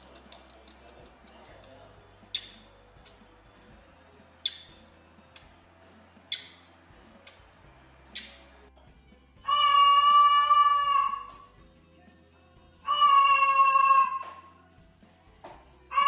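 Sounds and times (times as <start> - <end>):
high-pitched kissing smacks: 0.0 - 3.2, 4.4 - 4.7, 6.3 - 6.6, 8.1 - 8.4.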